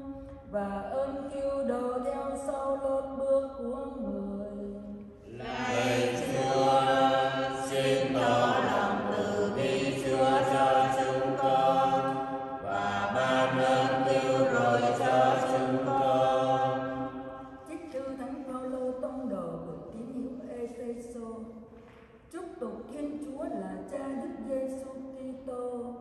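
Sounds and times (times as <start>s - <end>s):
chant-like church singing: 5.2s - 17.8s.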